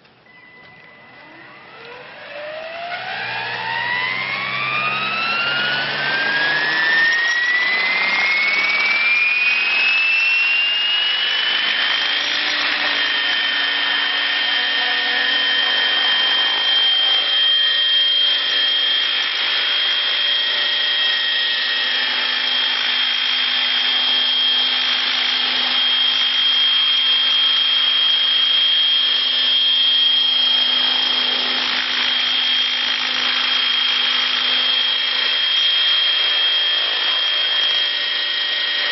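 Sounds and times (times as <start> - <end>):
model helicopter high whine: 0.0 - 38.9
spinning rotors rushing: 1.2 - 38.9.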